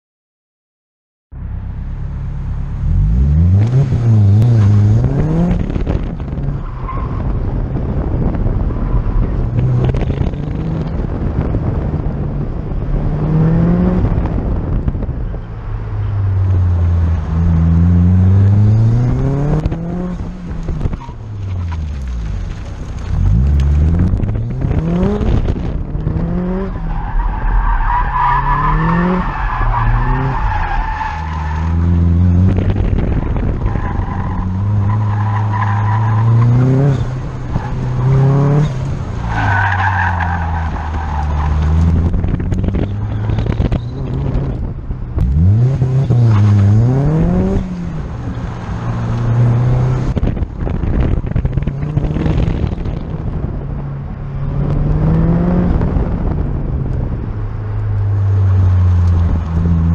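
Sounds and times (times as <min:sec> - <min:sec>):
car engine revving: 0:01.6 - 0:59.9.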